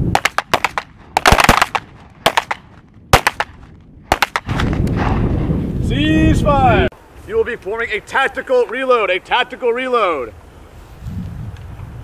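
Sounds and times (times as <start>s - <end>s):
pistol shots: 0.1s - 4.8s.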